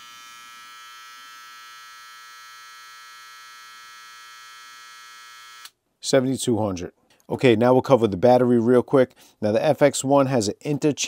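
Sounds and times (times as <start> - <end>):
hair trimmer humming: 0.0 - 5.7.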